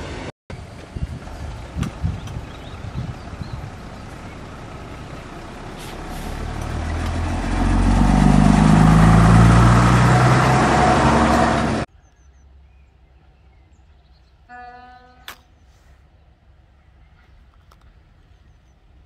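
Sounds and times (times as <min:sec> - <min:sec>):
railbus passing: 0:00.0 - 0:11.9.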